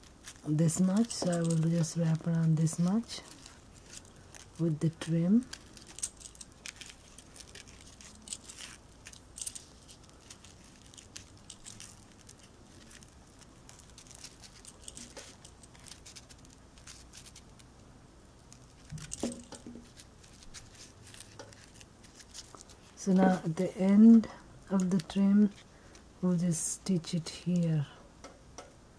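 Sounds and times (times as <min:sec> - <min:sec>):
fabric rustling: 0:00.0 - 0:17.7, 0:18.4 - 0:26.1
bangles clicking together: 0:05.4 - 0:13.1.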